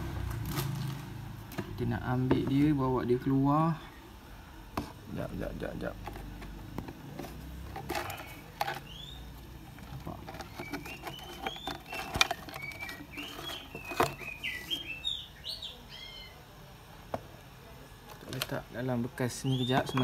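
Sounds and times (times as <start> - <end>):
plastic tub clicking and knocking: 1.5 - 2.7, 9.8 - 14.4
small birds chirping: 8.0 - 16.5, 19.2 - 20.0.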